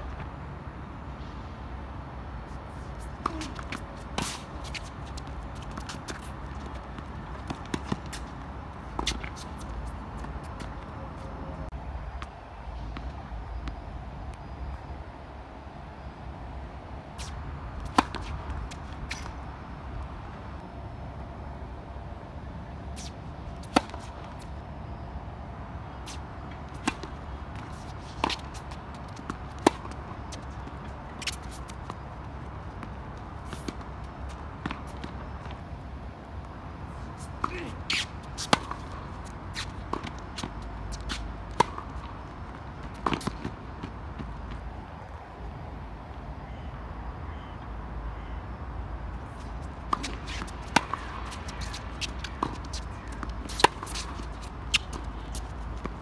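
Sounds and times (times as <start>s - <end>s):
shoes scuffing on court: 2.5s - 11.4s, 17.2s - 19.4s, 26.0s - 35.7s, 36.9s - 44.8s, 49.2s - 56.0s
tennis ball bouncing: 3.0s - 10.8s, 17.2s - 19.4s, 23.6s - 24.4s, 26.0s - 35.6s, 37.3s - 44.6s, 49.4s - 56.0s
tennis racquet hitting ball: 37.4s - 42.0s, 49.9s - 56.0s.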